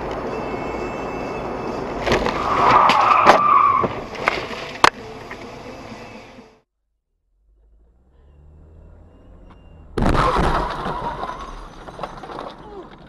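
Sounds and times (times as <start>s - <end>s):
tyres squealing under braking: 0.2s - 4.2s.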